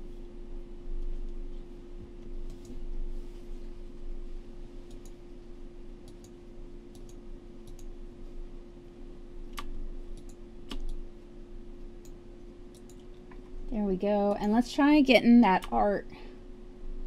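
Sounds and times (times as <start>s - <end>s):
electrical hum: 0.0s - 17.0s
computer mouse clicking: 2.4s - 2.8s, 4.8s - 5.2s, 6.0s - 7.9s, 9.5s - 11.0s, 12.0s - 13.4s.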